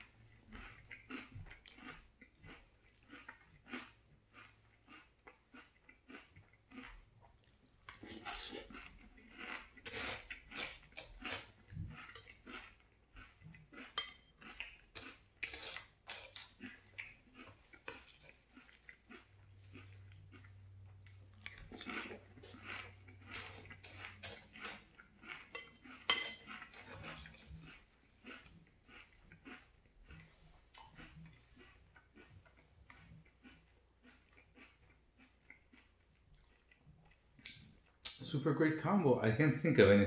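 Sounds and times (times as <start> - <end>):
chewing and crunching cereal: 0.0 - 38.5
metal spoon clinking on ceramic bowl: 25.5 - 26.5.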